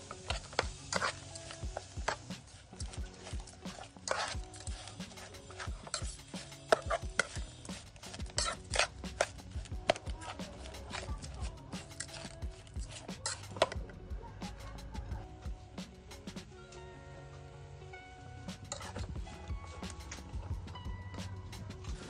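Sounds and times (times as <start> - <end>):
metal spoon scraping pot: 0.0 - 13.8, 18.6 - 20.3.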